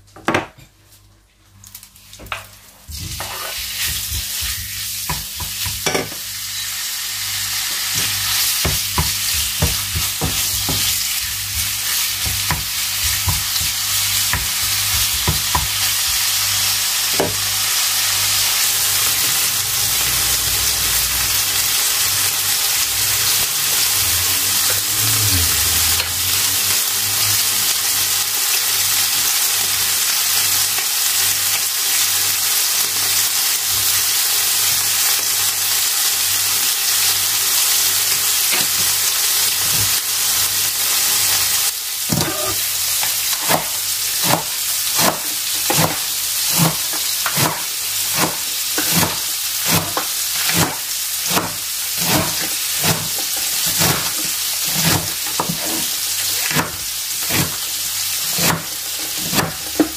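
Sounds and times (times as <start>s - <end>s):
food sizzling in a pan: 1.6s - 59.9s.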